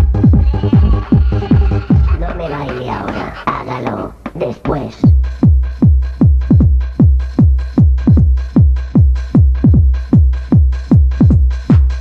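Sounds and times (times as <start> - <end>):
techno kick drum with booming bass: 0.0 - 2.3, 5.1 - 12.0.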